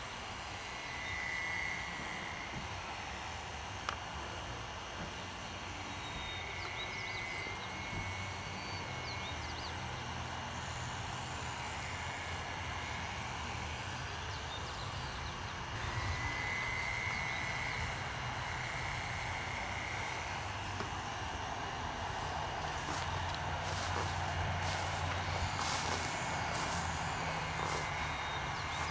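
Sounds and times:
model airplane engine whining: 0:00.0 - 0:28.9.

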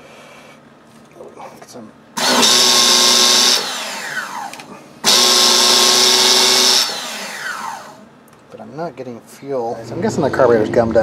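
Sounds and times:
electric starter cranking engine: 0:02.2 - 0:08.1
starter spinning down whine: 0:02.2 - 0:08.1.

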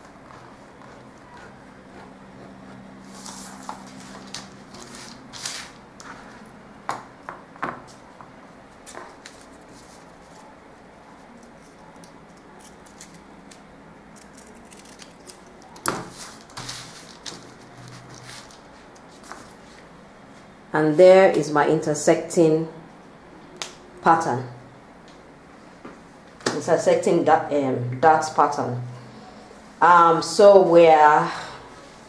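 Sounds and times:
paper rustling: 0:03.0 - 0:06.4, 0:08.8 - 0:13.6, 0:14.2 - 0:19.8.

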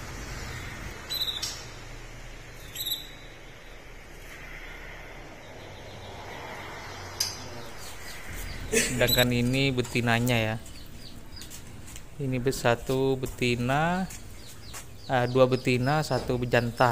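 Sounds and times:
canary chirps: 0:00.4 - 0:01.8, 0:02.6 - 0:03.8, 0:05.4 - 0:16.9.

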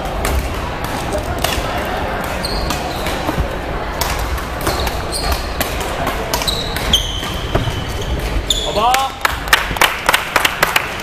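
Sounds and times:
background noise of play: 0:00.0 - 0:09.8
racket hitting shuttlecock: 0:00.2 - 0:08.4
shoes squeaking on floor: 0:02.3 - 0:03.6, 0:04.6 - 0:09.1.

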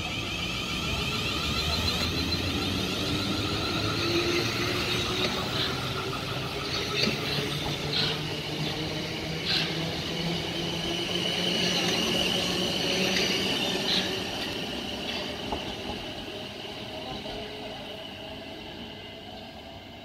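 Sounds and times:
electric train whine: 0:00.0 - 0:20.0
wheels rumbling on rails: 0:00.0 - 0:20.0.

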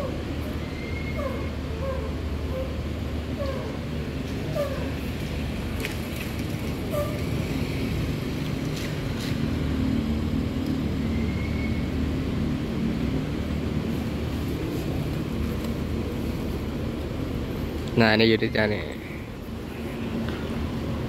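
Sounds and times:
diesel bus engine rumble: 0:00.0 - 0:21.0.

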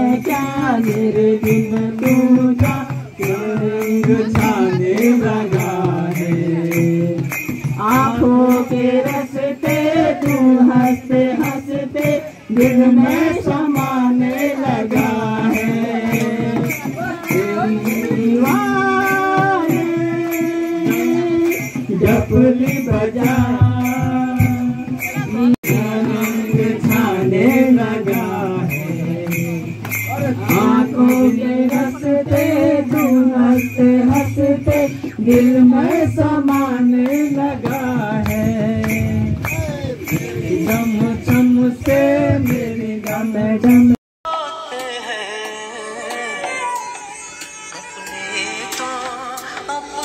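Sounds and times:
hand drum beating: 0:00.0 - 0:44.0
jingling percussion: 0:00.0 - 0:50.0
person singing: 0:43.9 - 0:50.0.

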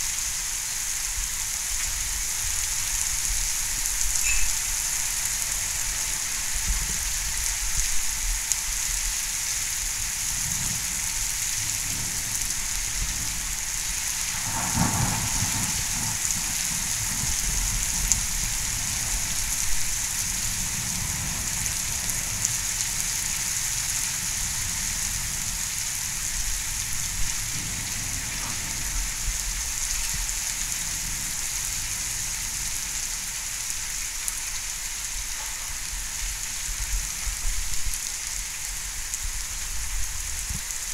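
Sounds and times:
heavy rain falling: 0:00.0 - 0:40.9
thunder rumbling: 0:10.3 - 0:32.8.

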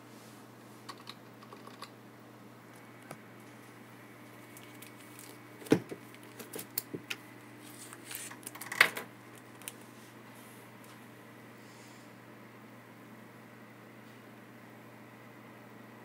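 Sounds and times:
paper rustle: 0:07.6 - 0:08.7.

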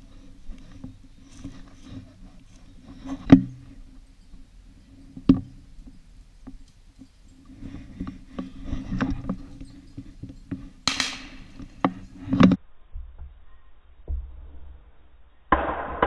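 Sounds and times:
footsteps through dry grass: 0:00.0 - 0:12.4
sharp cracks: 0:10.8 - 0:11.5, 0:15.5 - 0:16.0
distant shotgun shot with echo: 0:10.9 - 0:11.4, 0:15.5 - 0:16.0.

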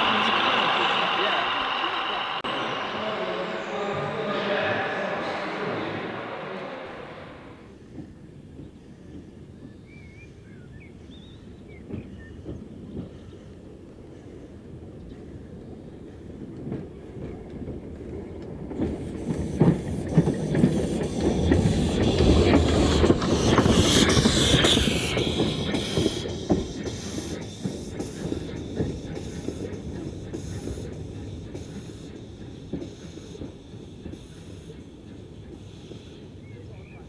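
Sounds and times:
loud hiss of steam: 0:00.0 - 0:07.8, 0:18.8 - 0:37.0
steam locomotive moving: 0:00.0 - 0:37.0
wheels clicking on track: 0:00.0 - 0:37.0.

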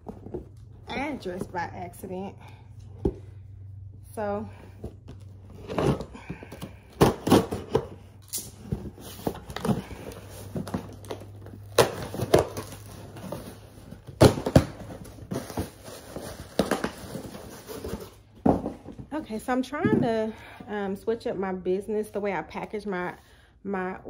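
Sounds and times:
cardboard tearing and crinkling: 0:06.7 - 0:18.2.

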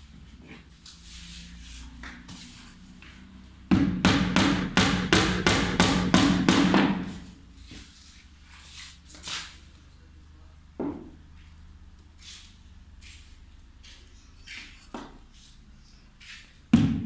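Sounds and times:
hammer driving nail into wood: 0:03.7 - 0:07.0.

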